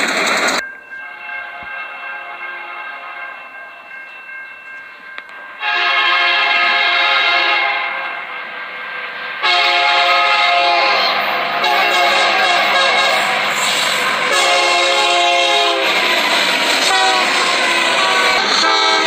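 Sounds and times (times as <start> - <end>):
train rumbling: 0.0 - 19.0
locomotive air horn chord: 1.0 - 3.4, 5.6 - 8.4, 9.4 - 19.0.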